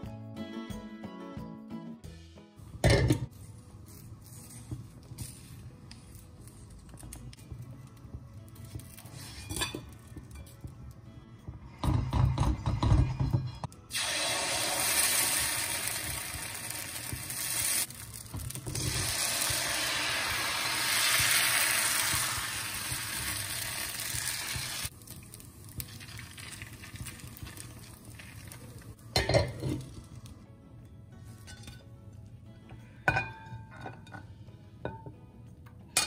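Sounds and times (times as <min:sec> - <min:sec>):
batter sizzling in a hot pan: 0:13.9 - 0:29.0.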